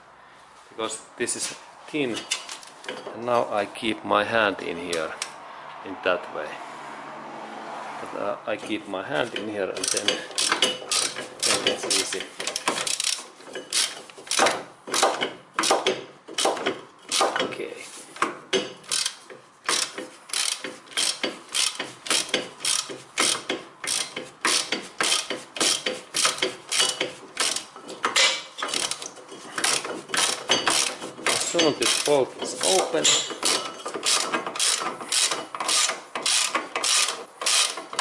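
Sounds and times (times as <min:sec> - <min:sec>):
ratchet wrench clicking: 0:09.8 - 0:11.8, 0:12.5 - 0:16.5, 0:18.6 - 0:27.7, 0:28.6 - 0:32.1, 0:33.0 - 0:38.0.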